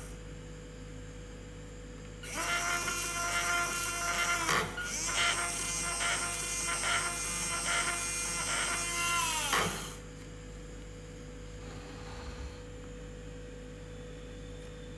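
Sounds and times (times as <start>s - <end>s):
faint steady hum: 0.0s - 14.9s
small motor whining: 2.2s - 10.0s.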